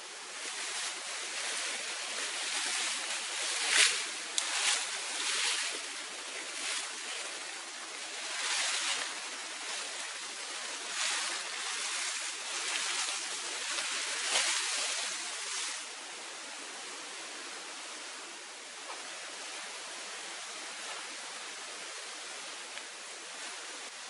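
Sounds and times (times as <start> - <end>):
dry leafy branches rustling: 0.0 - 16.0
steady hiss: 0.0 - 24.0.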